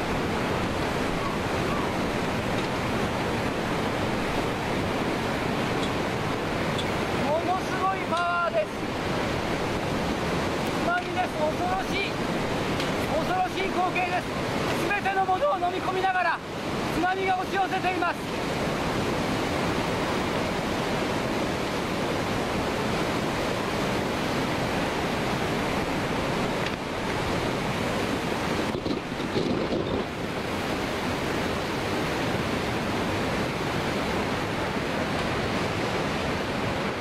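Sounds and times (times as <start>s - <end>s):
wind buffeting microphone: 0.0s - 7.8s, 18.4s - 37.0s
floodwater rushing and churning: 0.0s - 37.0s.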